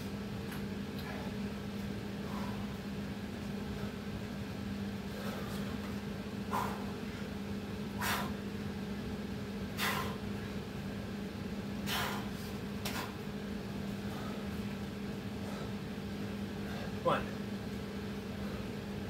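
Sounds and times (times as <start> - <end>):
steady low hum: 0.0 - 19.0
man exhaling sharply: 9.8 - 10.2, 11.9 - 12.4.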